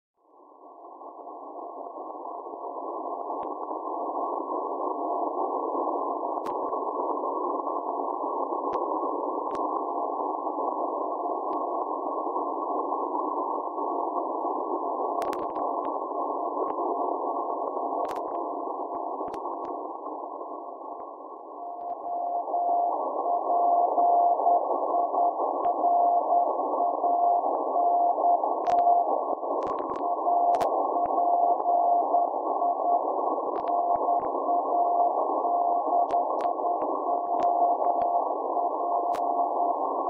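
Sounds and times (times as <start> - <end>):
sharp static clicks: 0.5 - 40.0
radio band noise hiss: 1.4 - 40.0
faint radio beacon tone: 16.0 - 40.0.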